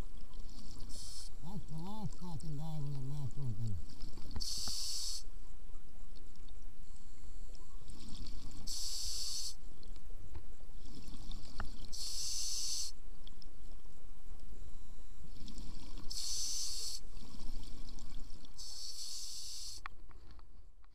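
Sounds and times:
regulator inhalations: 0.8s - 1.4s, 4.4s - 5.3s, 8.7s - 9.6s, 11.9s - 13.0s, 16.1s - 17.0s, 18.6s - 19.8s.

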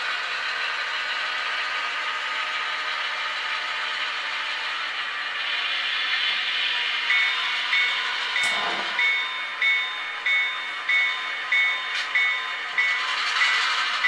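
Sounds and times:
locomotive bell ringing: 7.0s - 14.0s
sharp click: 8.4s - 9.0s.

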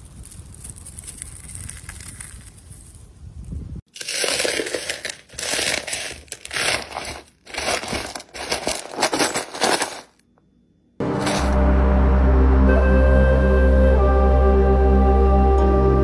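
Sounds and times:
ice cubes cracking and crunching: 3.9s - 10.2s
soft ambient music: 11.0s - 16.0s.

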